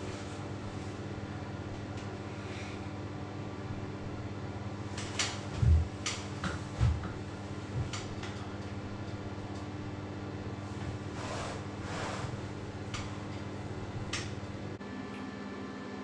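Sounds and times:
steady low hum: 0:00.0 - 0:16.0
knocks of chairs: 0:05.5 - 0:07.2.

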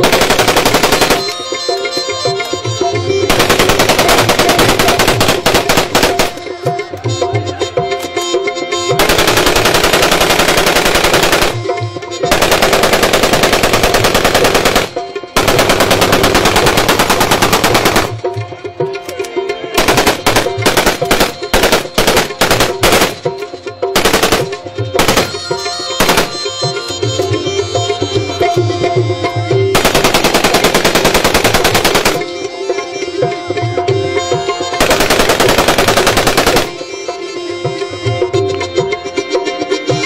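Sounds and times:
assault rifles firing automatic bursts: 0:00.0 - 0:01.4, 0:03.3 - 0:06.4, 0:09.0 - 0:18.2, 0:19.8 - 0:23.3, 0:24.0 - 0:26.5, 0:29.8 - 0:32.2, 0:34.8 - 0:36.8
separate gunshots: 0:00.0 - 0:01.4, 0:03.3 - 0:06.5, 0:09.0 - 0:18.3, 0:19.8 - 0:23.4, 0:24.0 - 0:26.6, 0:29.8 - 0:32.3, 0:34.8 - 0:36.9
folk music with tabla: 0:00.0 - 0:40.0.

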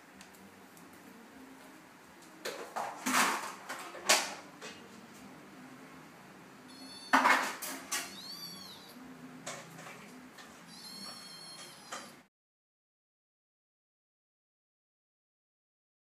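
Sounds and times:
high-pitched squeak: 0:06.7 - 0:09.0, 0:10.6 - 0:12.3.

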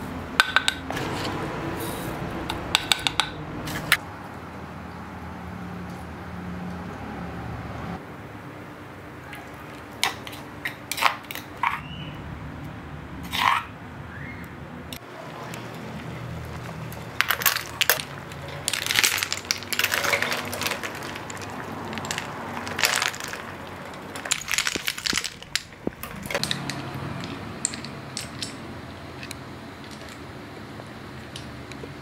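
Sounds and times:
shells clattering against steel pot: 0:16.9 - 0:30.2.

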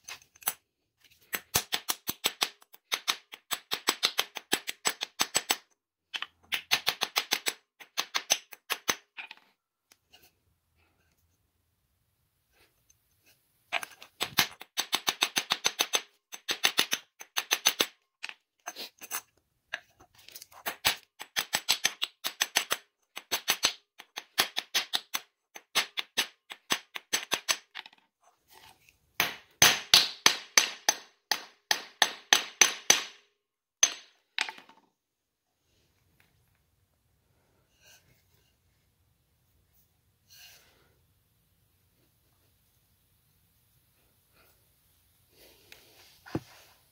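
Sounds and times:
hammer striking metal rivet: 0:33.8 - 0:34.6.

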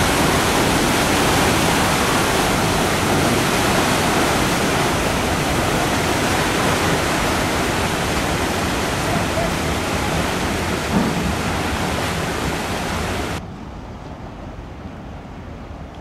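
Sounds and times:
paddle wheels churning water: 0:00.0 - 0:13.4.

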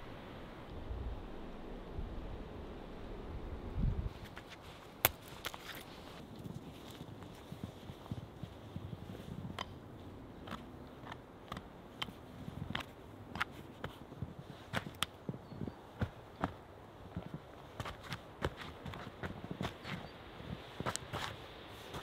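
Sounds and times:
boots crunching snow: 0:04.1 - 0:22.0
sharp snaps and clicks: 0:10.4 - 0:13.6.

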